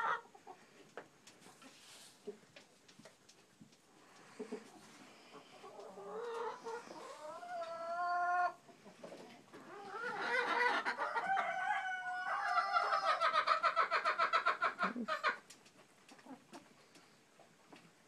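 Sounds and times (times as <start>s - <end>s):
chickens calling: 0.0s - 3.4s, 4.0s - 18.0s
chicken clucking rapidly: 4.2s - 17.1s.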